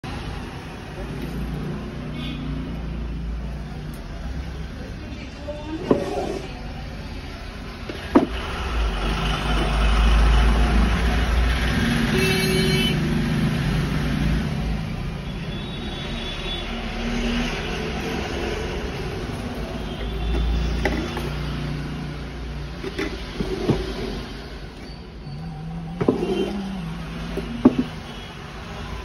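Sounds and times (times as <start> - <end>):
passing traffic rumble: 0.0 - 29.0
pitched horn toot: 12.1 - 13.0.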